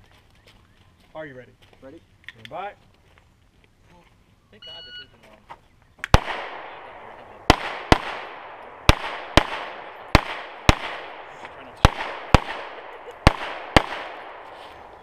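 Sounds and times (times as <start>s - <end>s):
pistol shots with echo: 6.1s - 15.0s.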